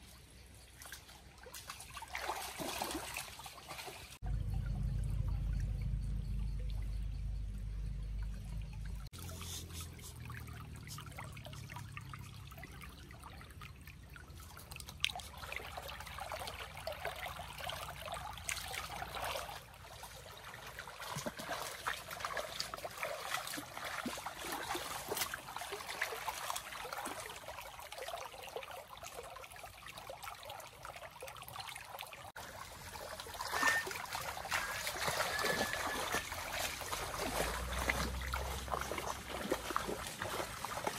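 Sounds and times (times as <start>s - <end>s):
stream trickling over rocks: 0.0s - 40.9s
feet wading through water: 0.7s - 4.2s, 8.3s - 40.9s
low rumble: 4.2s - 9.1s.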